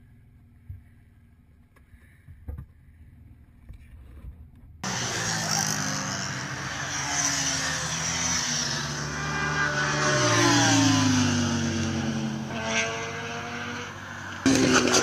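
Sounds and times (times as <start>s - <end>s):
motorcycles passing at speed: 4.8s - 15.0s.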